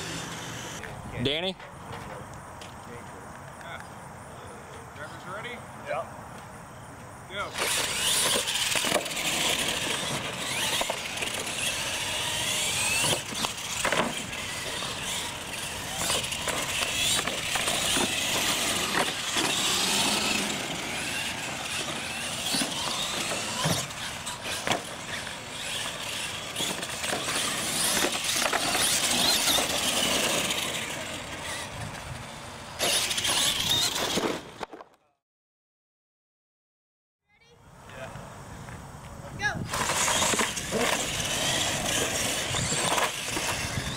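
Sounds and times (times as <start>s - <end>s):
electric motors whining: 0.0s - 3.0s, 7.3s - 34.6s, 39.6s - 43.9s
tyre noise on concrete: 7.4s - 32.1s, 38.6s - 43.9s.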